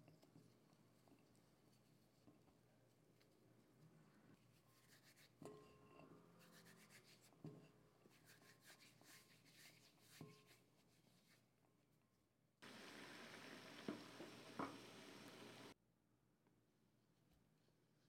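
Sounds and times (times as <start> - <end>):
hands rubbing flour: 0.0 - 11.7.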